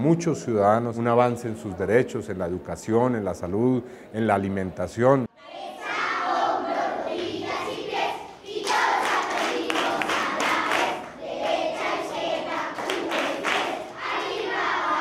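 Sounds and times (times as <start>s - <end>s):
crowd chanting and shouting: 5.3s - 15.0s.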